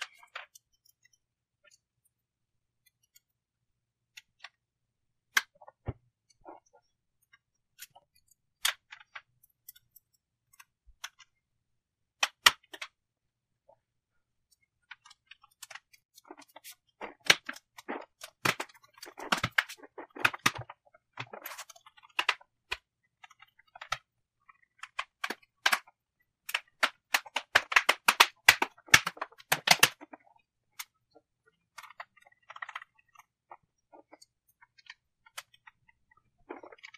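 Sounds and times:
plastic cover clicks and snaps: 26.5s - 30.1s.

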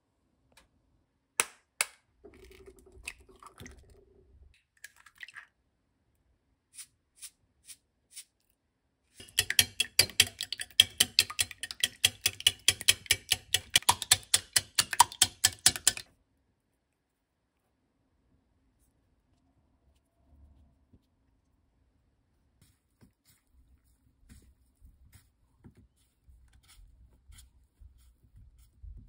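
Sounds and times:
wire whisk beating eggs in glass bowl: 9.2s - 16.1s.

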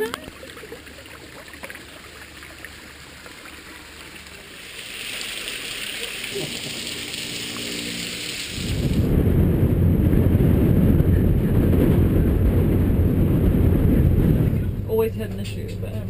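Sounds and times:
waterfall splashing onto rocks: 3.8s - 9.0s.

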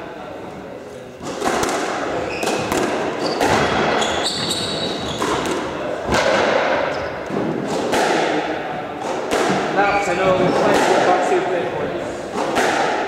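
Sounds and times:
squash ball knocking: 1.2s - 8.4s, 9.0s - 11.2s, 12.3s - 13.0s
shoes squeaking on wooden floor: 2.2s - 5.6s.

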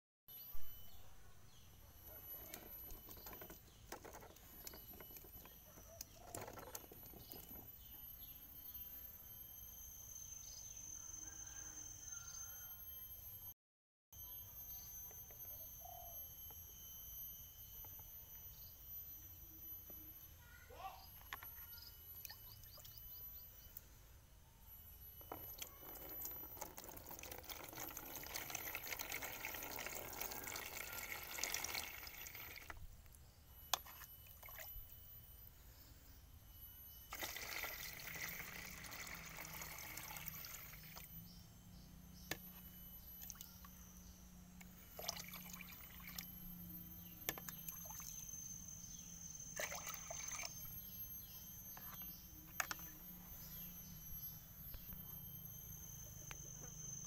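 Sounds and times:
water pouring into plastic tub: 25.6s - 32.8s, 37.1s - 41.1s, 45.0s - 46.2s, 49.6s - 50.6s.

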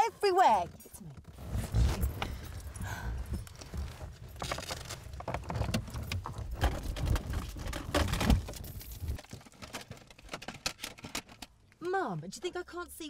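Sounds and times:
clicks knocks and rustles: 3.5s - 11.8s.

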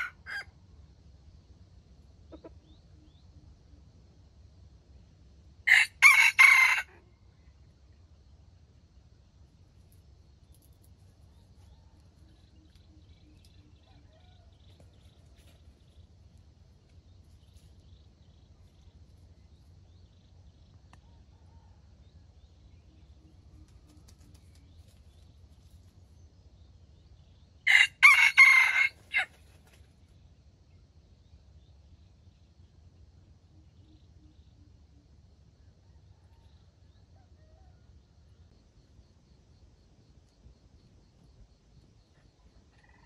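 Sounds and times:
rooster crowing: 0.0s - 0.5s, 5.7s - 7.1s, 13.8s - 14.9s, 27.7s - 29.3s.

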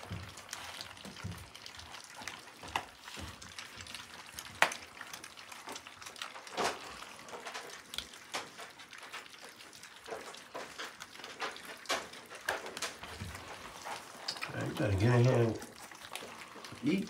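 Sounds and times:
puppies lapping wet food: 0.0s - 17.0s.

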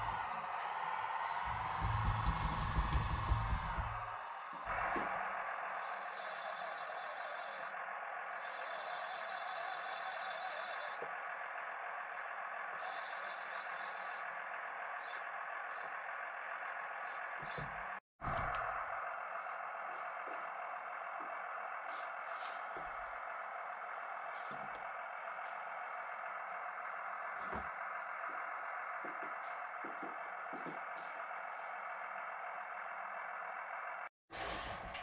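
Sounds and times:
toy bulldozer motor running: 5.7s - 18.6s.

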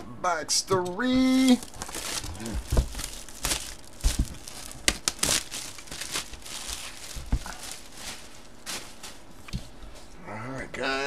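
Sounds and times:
packaging crinkling and tearing: 1.3s - 9.3s.

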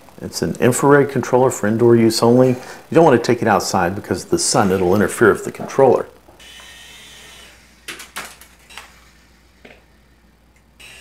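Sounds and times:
toy helicopter rotor motor whining: 6.4s - 11.0s.

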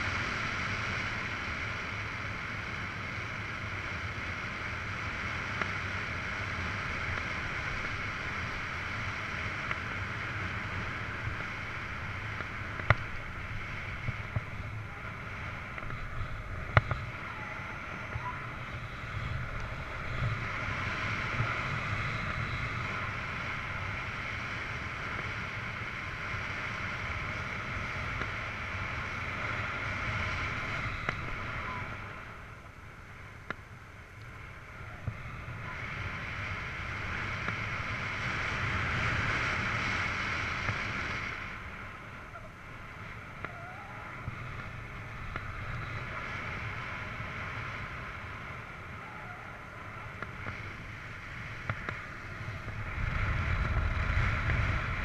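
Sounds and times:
wind rushing over camera: 0.0s - 55.0s
faint clicks: 31.0s - 31.4s, 50.1s - 52.8s.

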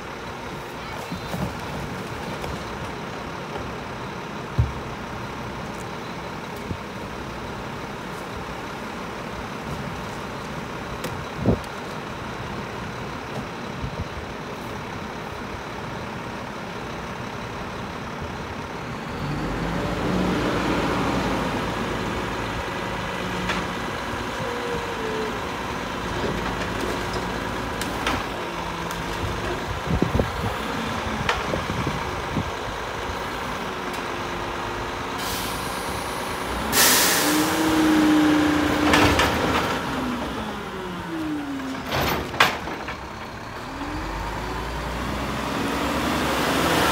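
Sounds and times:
garbage truck engine revving: 18.8s - 46.9s
loud air hiss: 35.2s - 37.5s
clunks and knocks: 38.7s - 39.8s, 41.6s - 43.3s.

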